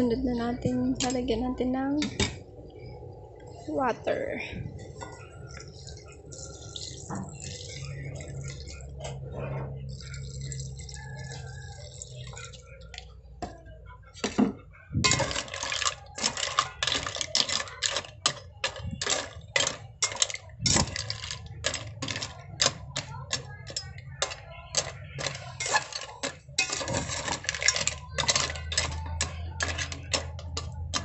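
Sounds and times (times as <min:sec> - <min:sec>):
water pouring into metal pot: 0:05.4 - 0:09.2, 0:09.8 - 0:13.0, 0:15.1 - 0:31.0
mussel shells clattering: 0:15.0 - 0:31.0.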